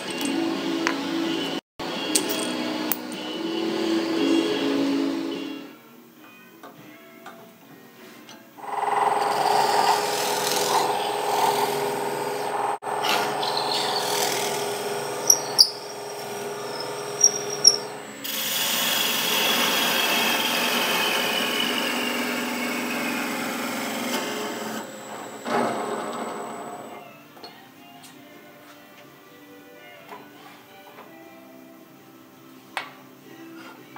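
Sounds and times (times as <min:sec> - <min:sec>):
drill bit clicking and squealing: 0:08.6 - 0:18.4
wood lathe spinning: 0:08.6 - 0:26.9.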